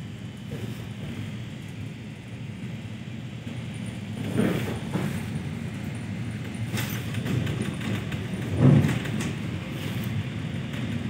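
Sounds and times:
train wheels rumbling on rails: 0.0s - 11.0s
train knocks: 4.2s - 5.4s, 6.4s - 9.8s.

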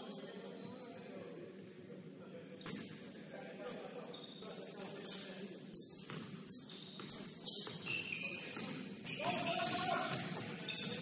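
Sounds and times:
shoes squeaking on gym floor: 3.6s - 11.0s.

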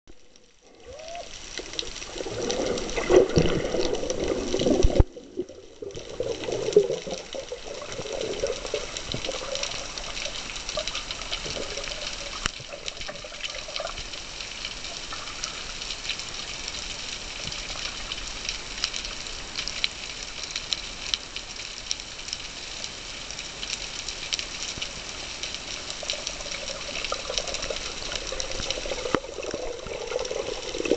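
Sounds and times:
hiss with dense crackling: 0.1s - 30.9s
underwater sloshing rushes: 0.6s - 13.9s.

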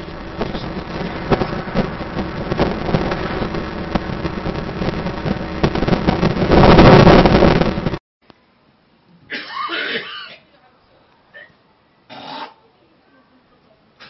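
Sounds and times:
moving car: 0.0s - 7.9s
wind buffeting microphone: 0.0s - 8.0s.

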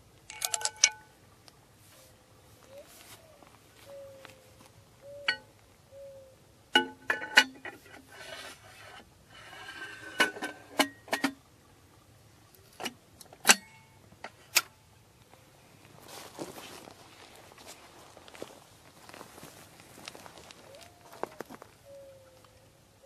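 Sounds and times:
metal clanks of rifle parts: 0.3s - 1.1s, 6.8s - 11.4s, 12.7s - 14.7s.

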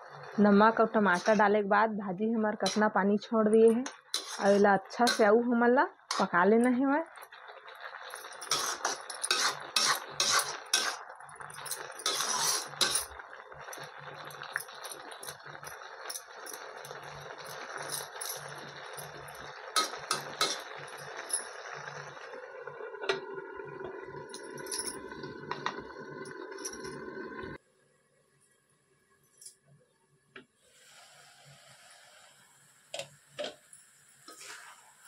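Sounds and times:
greens sizzling: 0.0s - 1.6s, 2.5s - 27.6s, 34.2s - 35.0s
steel spoon scraping pan: 1.1s - 1.4s, 2.6s - 2.9s, 3.9s - 5.3s, 8.1s - 11.0s, 11.6s - 13.2s, 19.8s - 20.7s, 34.3s - 34.8s.

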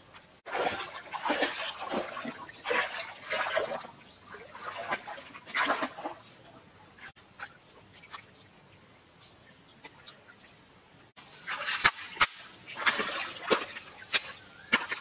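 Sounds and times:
hands splashing in stream: 0.5s - 6.2s, 11.4s - 15.0s.

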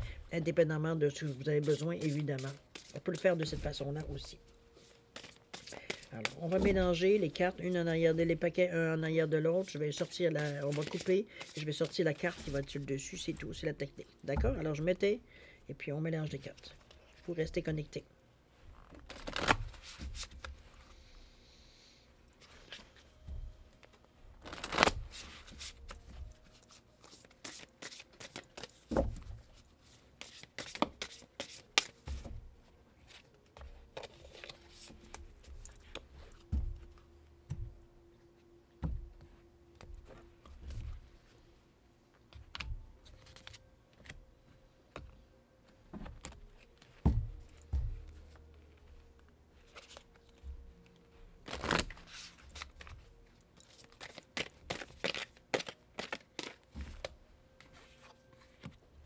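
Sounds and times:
cards being shuffled: 1.1s - 7.8s, 9.6s - 13.2s, 18.8s - 20.9s, 23.8s - 32.3s, 33.1s - 36.9s, 42.3s - 44.2s, 49.6s - 50.5s, 51.4s - 58.8s.

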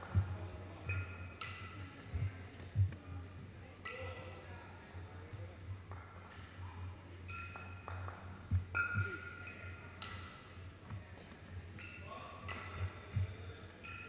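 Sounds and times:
kettlebells clinking: 0.0s - 2.1s, 3.8s - 4.4s, 5.9s - 10.7s, 11.7s - 14.0s.

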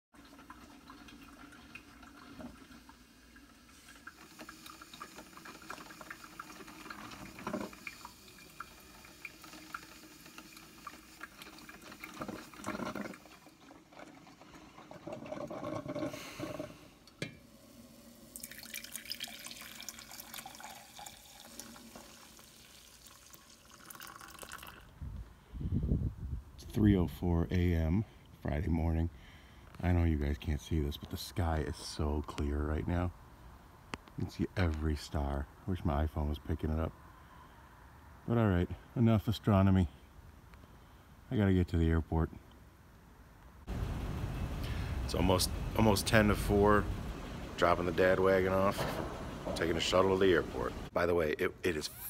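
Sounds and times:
coffee maker brewing: 0.1s - 24.9s
coffee poured into mug: 17.8s - 24.9s.

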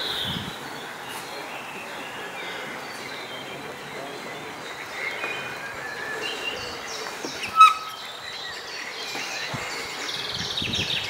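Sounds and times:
outdoor background hiss: 0.0s - 11.0s
small birds chirping: 0.0s - 11.0s
sharp bird call: 6.6s - 8.2s.

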